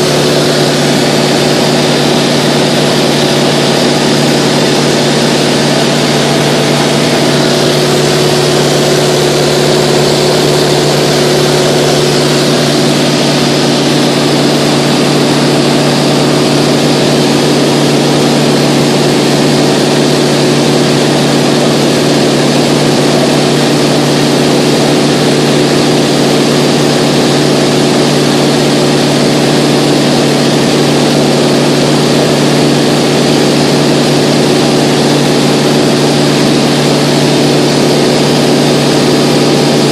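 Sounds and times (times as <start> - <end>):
aircraft engine drone in cabin: 0.0 - 39.9.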